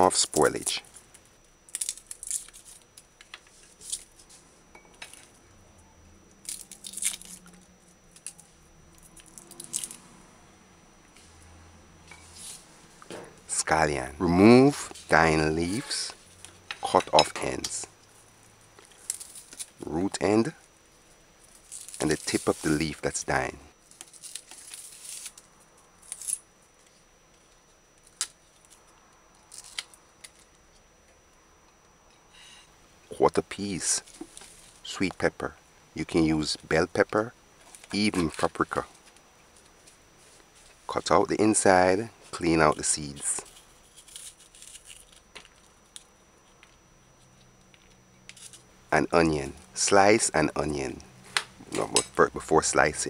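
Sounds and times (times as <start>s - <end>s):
garlic skin crackling and tearing: 1.7s - 2.8s, 6.4s - 7.5s, 44.0s - 45.3s.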